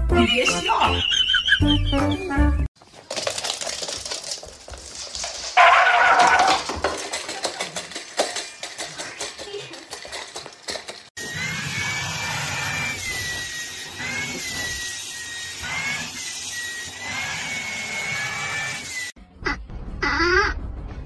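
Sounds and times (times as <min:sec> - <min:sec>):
dog eating from metal bowl: 0:02.8 - 0:11.1.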